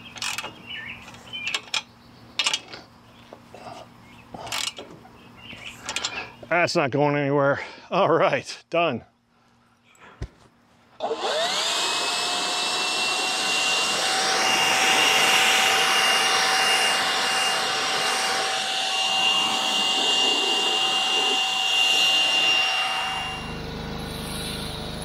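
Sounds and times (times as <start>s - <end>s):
leaf blower whining: 10.9s - 25.0s.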